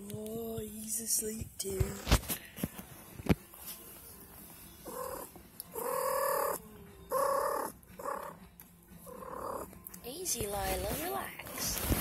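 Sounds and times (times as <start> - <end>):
cat calling: 4.8 - 8.4, 9.1 - 9.8.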